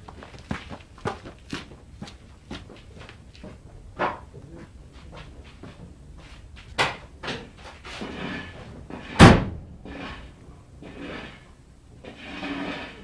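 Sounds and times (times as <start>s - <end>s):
loud deep thump: 9.1s - 9.8s.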